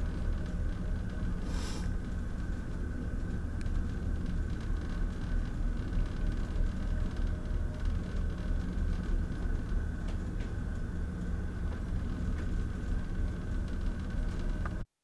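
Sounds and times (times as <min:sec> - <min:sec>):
faint high hum: 0:00.0 - 0:14.8
brief hiss: 0:01.4 - 0:01.9.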